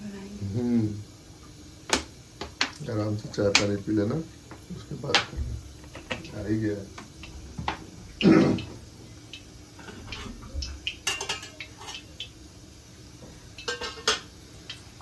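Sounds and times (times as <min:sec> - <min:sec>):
metal utensils clinking: 0:05.0 - 0:06.6, 0:09.8 - 0:12.3, 0:13.5 - 0:14.3
loud dull knock: 0:05.2 - 0:06.3.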